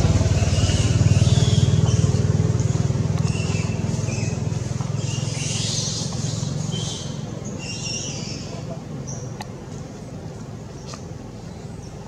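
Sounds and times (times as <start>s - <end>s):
small engine running: 0.0s - 7.0s.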